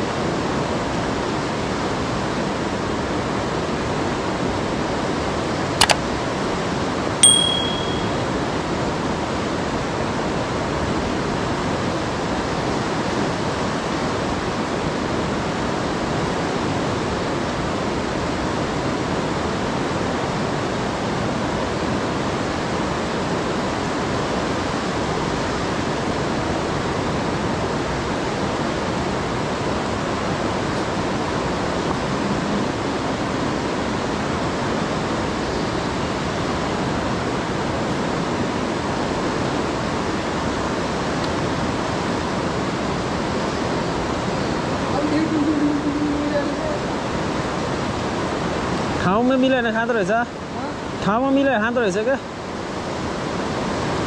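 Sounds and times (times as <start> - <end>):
fast-flowing river rushing: 0.0 - 54.0
bright ding chime: 7.2 - 8.4.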